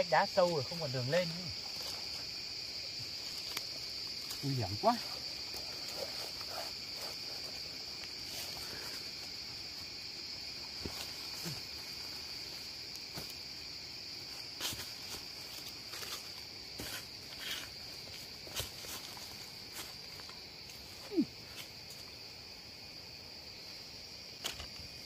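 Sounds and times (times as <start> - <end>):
insects droning: 0.0 - 25.0
footsteps on dry leaves and twigs: 10.6 - 21.0.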